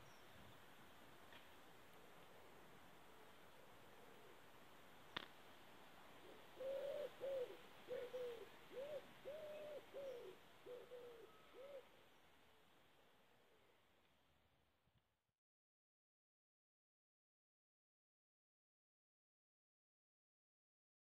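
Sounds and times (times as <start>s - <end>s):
pigeon cooing: 6.2s - 11.9s.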